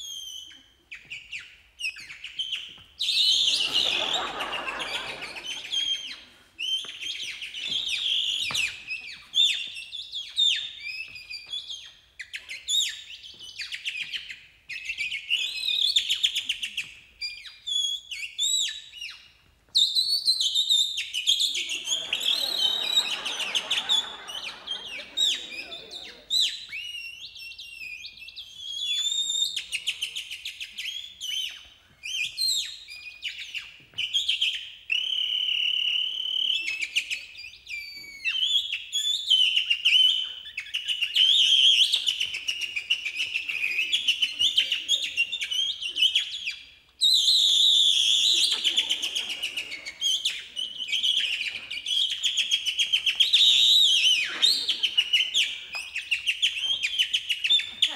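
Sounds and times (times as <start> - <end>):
person whistling bird calls: 19.8 - 29.8, 47.0 - 57.6.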